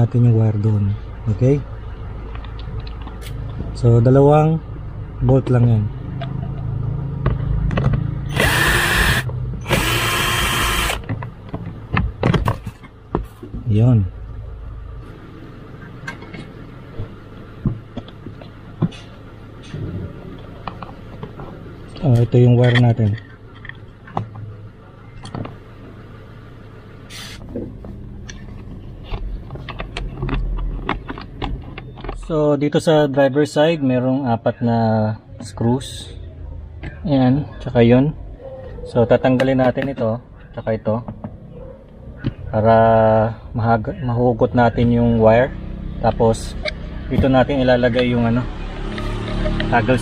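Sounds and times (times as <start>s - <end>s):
cordless drill whining: 8.3s - 11.0s.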